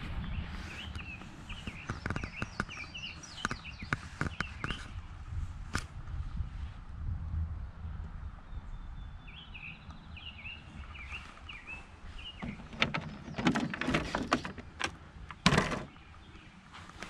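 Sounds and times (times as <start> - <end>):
bird chirping: 0.0 - 5.1, 8.4 - 17.0
wind rumble: 0.0 - 16.7
plastic hatch clicking and clattering: 12.4 - 15.9.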